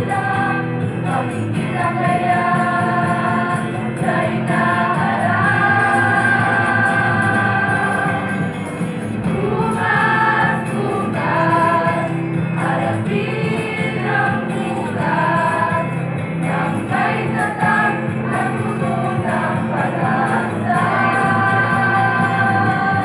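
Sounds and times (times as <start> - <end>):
students singing in chorus: 0.0 - 23.0.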